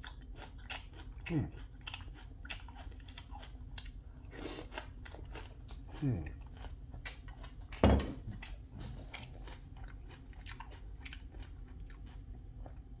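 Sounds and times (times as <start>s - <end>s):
bowl thump on worktop: 7.8s - 8.2s.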